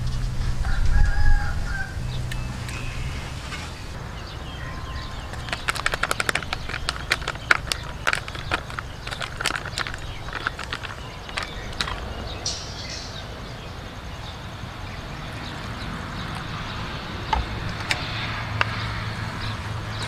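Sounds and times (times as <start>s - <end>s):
plastic packet crackling: 5.2s - 12.1s.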